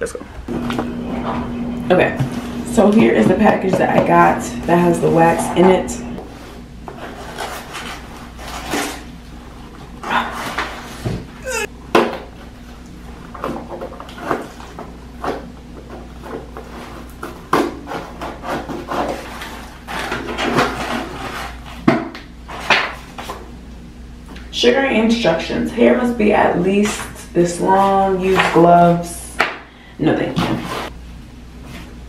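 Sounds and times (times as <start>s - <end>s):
cardboard rubbing and scraping: 6.2s - 9.1s.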